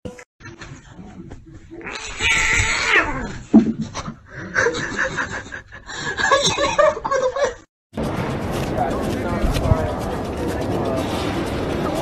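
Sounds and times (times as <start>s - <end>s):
cat yowling: 1.8s - 3.3s.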